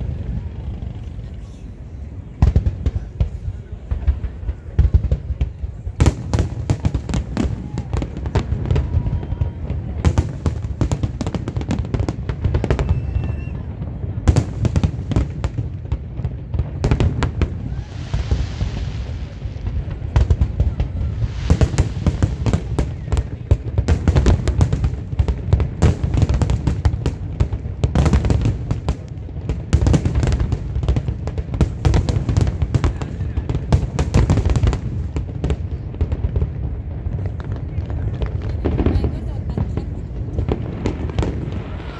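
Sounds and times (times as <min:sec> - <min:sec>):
fireworks bursting: 0:00.0 - 0:41.9
rising hiss: 0:17.7 - 0:19.6.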